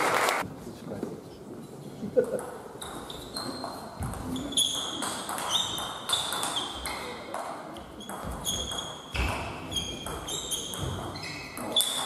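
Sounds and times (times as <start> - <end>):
shoes squeaking on floor: 2.8 - 12.0.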